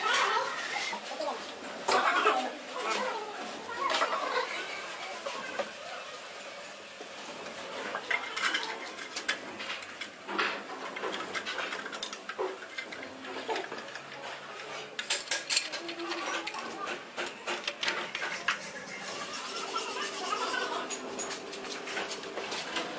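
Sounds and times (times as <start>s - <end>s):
metal parts clinking and clicking: 15.0s - 16.5s.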